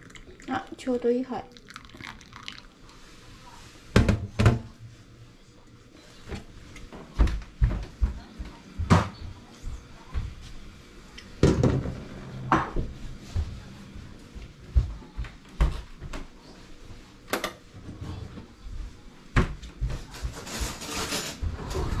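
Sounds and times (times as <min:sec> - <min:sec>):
dishes knocking and clattering: 0:04.0 - 0:04.7, 0:07.1 - 0:09.3, 0:11.4 - 0:12.9.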